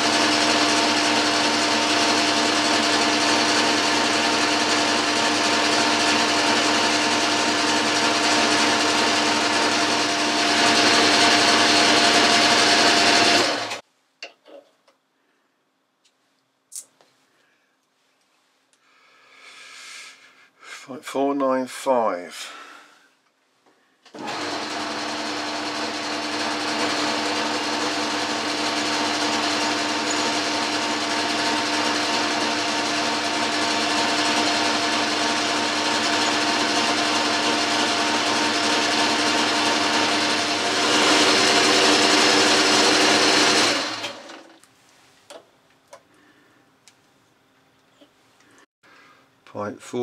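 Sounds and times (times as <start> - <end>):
lathe humming and whining: 0.0 - 13.8, 24.1 - 44.6.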